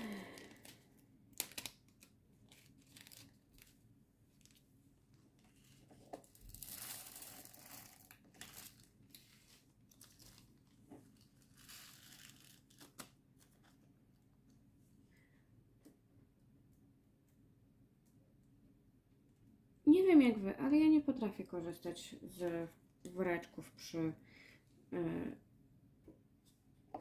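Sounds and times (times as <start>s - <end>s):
plastic bag crinkling and rustling: 0.1s - 4.7s, 5.4s - 13.8s.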